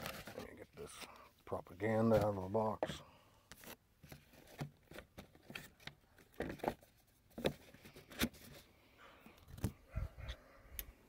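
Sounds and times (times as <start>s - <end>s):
cardboard and paper rustling: 0.0s - 1.2s, 1.8s - 8.7s.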